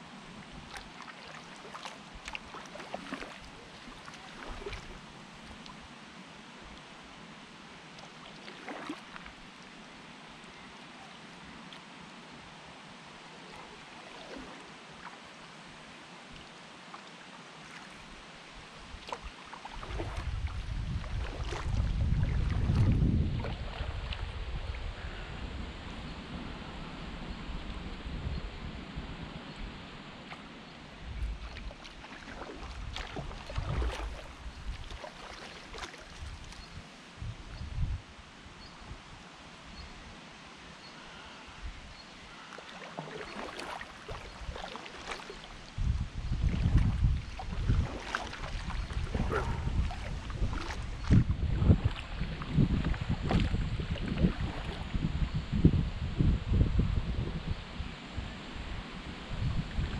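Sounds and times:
paddle splashing in water: 0:00.3 - 0:05.8, 0:07.9 - 0:09.8, 0:13.4 - 0:15.4, 0:16.3 - 0:24.9, 0:30.2 - 0:37.0, 0:42.2 - 0:55.0
wind rumble on microphone: 0:18.0 - 0:40.2, 0:41.1 - 0:42.4, 0:44.1 - 0:59.9.

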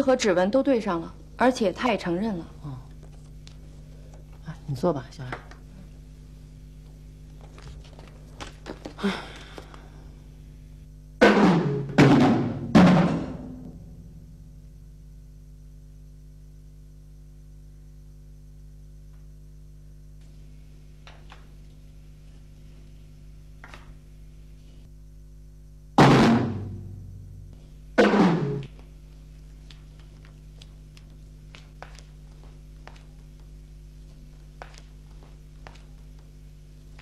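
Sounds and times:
steady low hum: 0:00.0 - 0:37.0
drum and cymbal hits: 0:11.2 - 0:14.0, 0:26.0 - 0:28.7.

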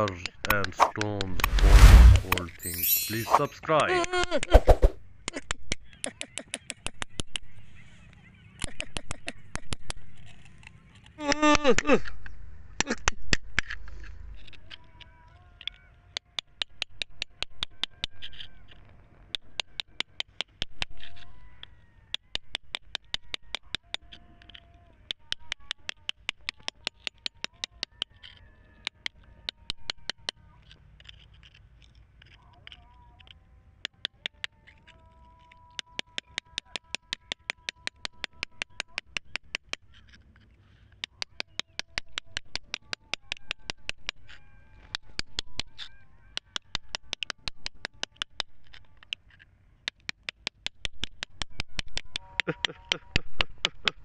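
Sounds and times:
chisel tapping on rock: 0:16.4 - 0:18.6, 0:22.1 - 0:40.2, 0:41.0 - 0:54.0.

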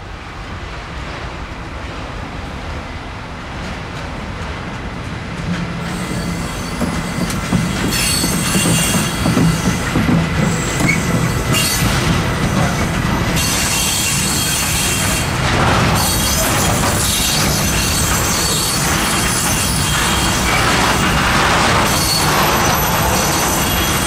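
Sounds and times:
train passing on rails: 0:00.0 - 0:24.0
wheels squealing on rails: 0:05.8 - 0:24.0.

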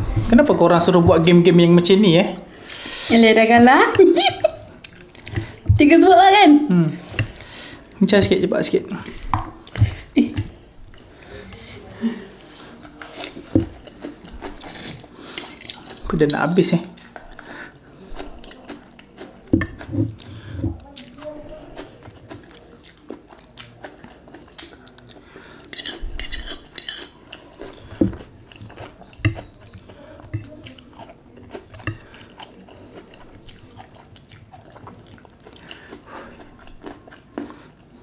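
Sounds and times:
noodles slurped and chewed: 0:17.0 - 0:26.0, 0:27.0 - 0:38.0
fork clinking on dishes: 0:25.7 - 0:27.2.

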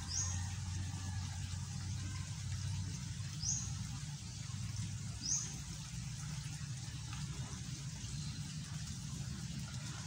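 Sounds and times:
bird chirp: 0:00.0 - 0:00.5, 0:03.3 - 0:04.5, 0:05.1 - 0:05.7
low steady hum: 0:00.0 - 0:10.0.

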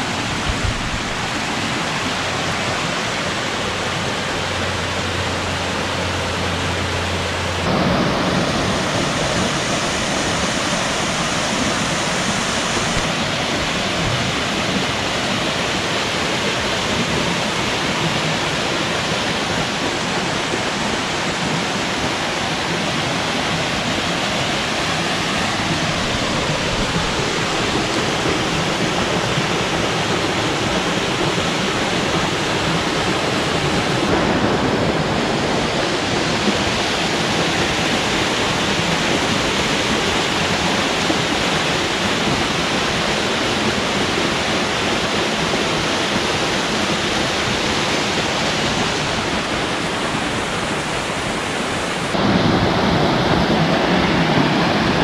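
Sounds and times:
water running over rocks: 0:00.0 - 0:34.2.

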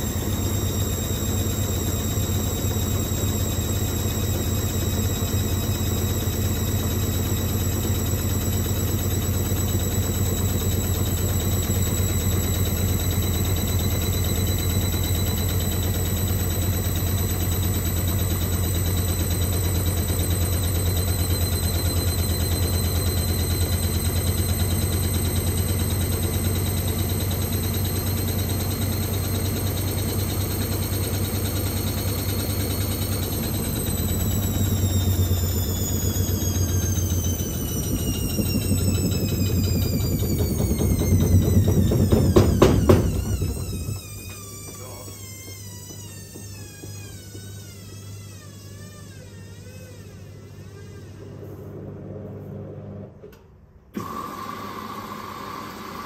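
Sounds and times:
washing machine motor hum: 0:00.0 - 0:56.0.

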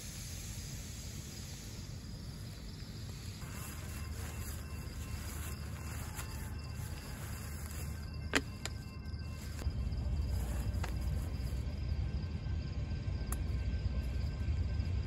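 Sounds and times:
gear handling rumble: 0:03.4 - 0:11.9.

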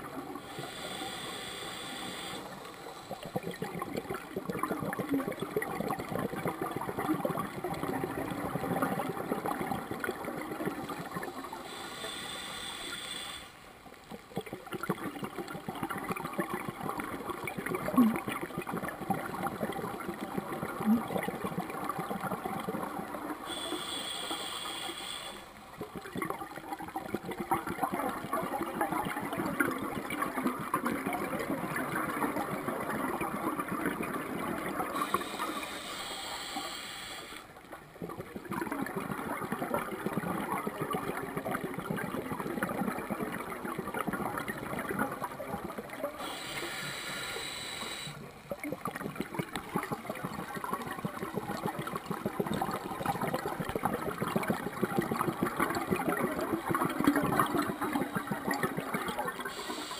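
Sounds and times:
regulator exhale bubbling: 0:00.0 - 0:13.6, 0:14.2 - 0:59.9
regulator inhalation hiss: 0:00.4 - 0:03.4, 0:11.2 - 0:13.6, 0:23.5 - 0:25.6, 0:35.0 - 0:37.5, 0:46.2 - 0:48.2, 0:59.5 - 0:59.9.

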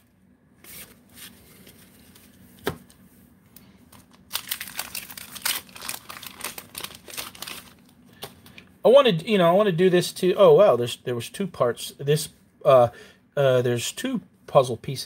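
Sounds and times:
wrapper crinkling and tearing: 0:03.9 - 0:08.0.

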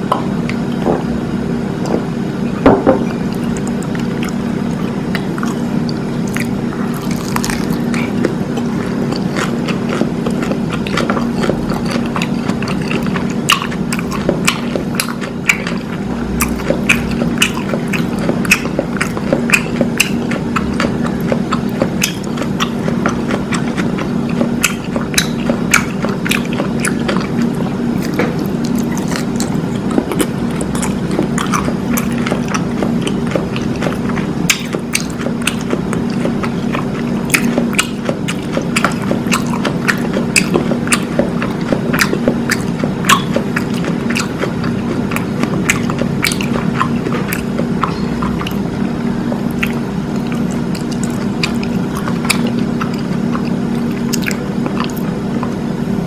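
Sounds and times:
steady low hum: 0:00.0 - 0:56.0
wet chewing: 0:01.8 - 0:55.6
crunching taco shell: 0:06.2 - 0:15.8.

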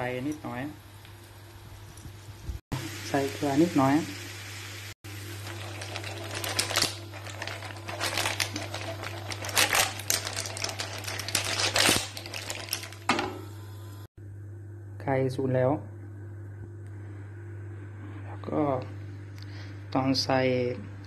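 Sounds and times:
seafood frying in a pan: 0:02.8 - 0:13.9.

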